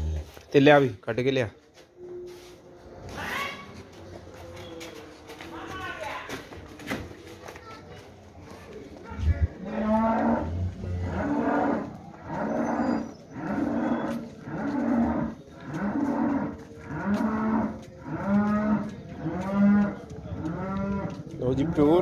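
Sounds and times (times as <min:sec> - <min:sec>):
cow mooing: 0:09.6 - 0:22.0.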